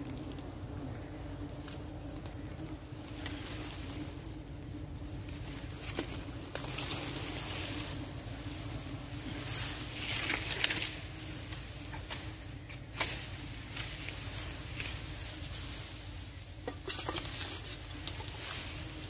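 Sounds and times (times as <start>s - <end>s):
clicks and rustles of leaves: 0.0s - 19.0s.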